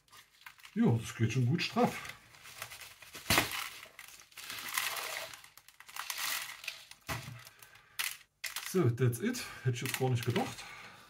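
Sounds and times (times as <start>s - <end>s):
plastic tub crackling and scraping: 1.7s - 8.8s
sharp crack: 3.2s - 8.8s.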